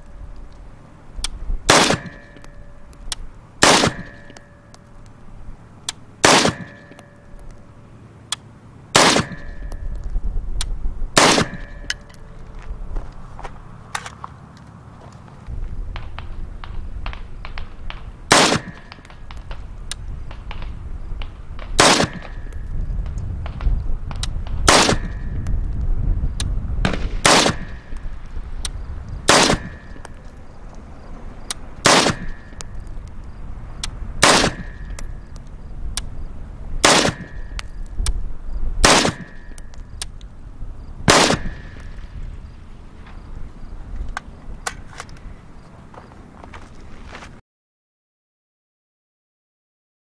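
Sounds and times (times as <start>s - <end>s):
rifle shots: 1.7s - 2.5s, 3.6s - 4.4s, 6.2s - 7.1s, 8.9s - 9.8s, 11.2s - 12.0s, 16.2s - 19.6s, 21.6s - 22.6s, 24.4s - 25.3s, 26.8s - 28.2s, 29.3s - 30.2s, 31.8s - 32.8s, 34.2s - 35.2s, 36.8s - 37.7s, 38.8s - 39.8s, 41.0s - 42.0s.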